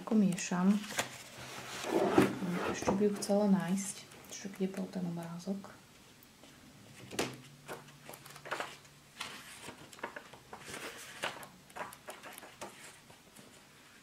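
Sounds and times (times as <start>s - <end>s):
pages flicking and rustling: 0.3s - 2.3s, 7.0s - 13.7s.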